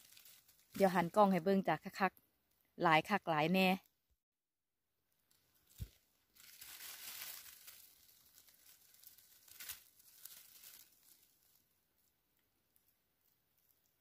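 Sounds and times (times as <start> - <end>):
shrubs rustling and crinkling: 0.0 - 1.2, 5.3 - 12.1.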